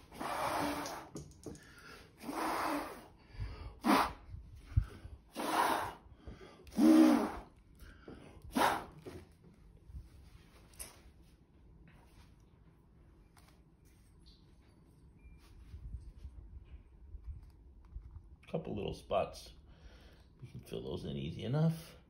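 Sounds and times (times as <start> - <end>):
person blowing puffs of breath: 0.0 - 9.0.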